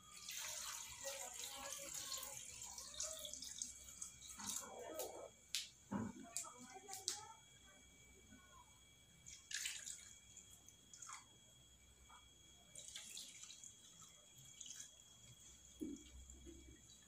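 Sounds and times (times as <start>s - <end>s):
water dripping and splashing: 0.2s - 7.2s, 9.2s - 11.3s, 12.7s - 17.0s.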